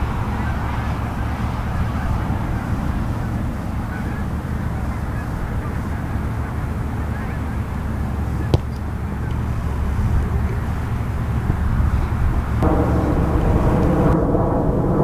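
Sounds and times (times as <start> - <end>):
wind rumble on microphone: 0.0 - 15.0
foot kicking football: 8.5 - 9.4.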